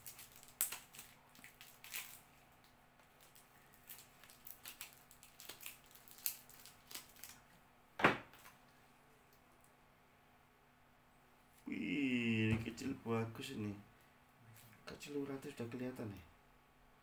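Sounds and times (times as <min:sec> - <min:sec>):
packing wrap crinkling: 0:00.0 - 0:07.4.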